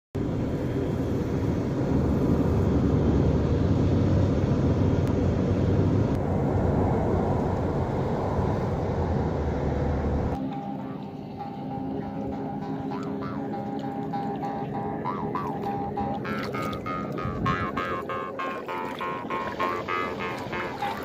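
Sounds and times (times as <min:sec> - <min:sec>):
vehicle road and wind noise: 0:00.2 - 0:21.0.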